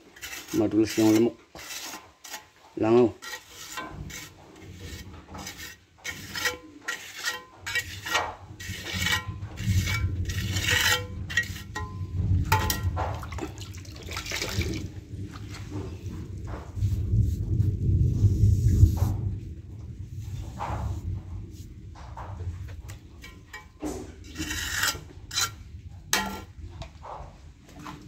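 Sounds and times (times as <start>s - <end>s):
low rumble: 8.5s - 27.8s.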